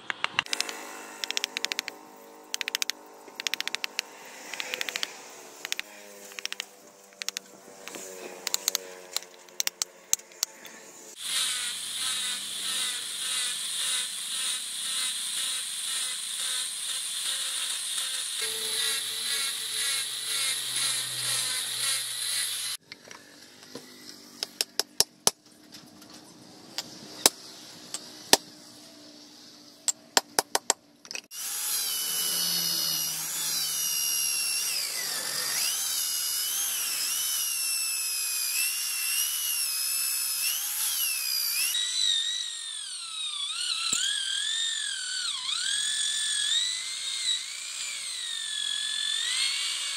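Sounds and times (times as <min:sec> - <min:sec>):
angle grinder whining: 0:00.3 - 0:24.2, 0:31.3 - 0:49.9
motor spinning with high whine: 0:31.4 - 0:49.9.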